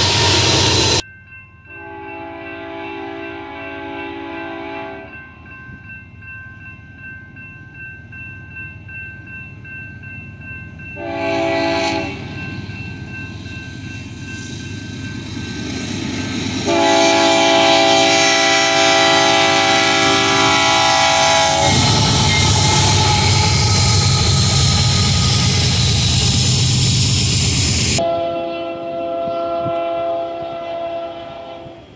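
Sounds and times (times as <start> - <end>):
diesel locomotive engine rumble: 0.0 - 1.0, 9.6 - 31.9
crossing bell ringing: 1.0 - 28.1
train air horn blasts: 1.8 - 5.1, 11.0 - 12.4, 16.6 - 26.0, 27.9 - 31.9.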